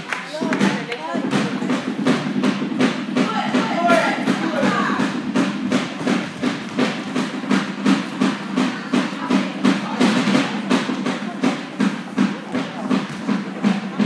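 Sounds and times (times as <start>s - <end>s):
rhythmic percussion strikes: 0.0s - 14.0s.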